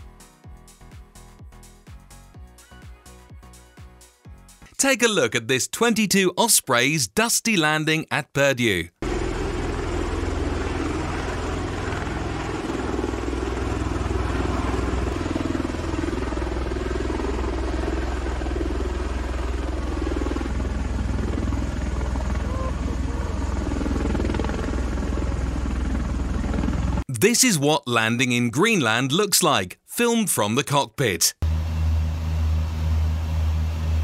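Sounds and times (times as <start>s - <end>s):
deep rotor din: 9.0s - 27.0s, 31.4s - 34.0s.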